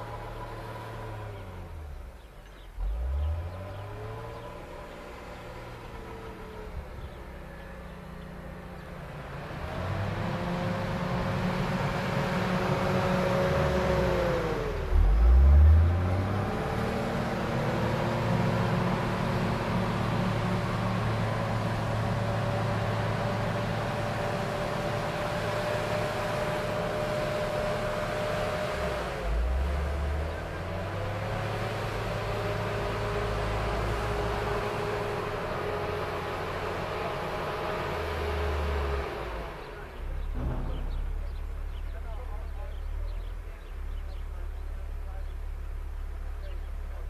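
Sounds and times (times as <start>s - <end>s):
loader diesel engine revving: 0.0s - 47.0s
loud low thump: 40.3s - 41.2s.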